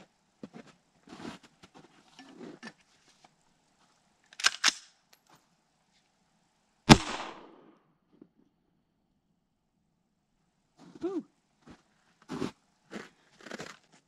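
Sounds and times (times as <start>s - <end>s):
loud gunshot: 6.9s - 7.7s.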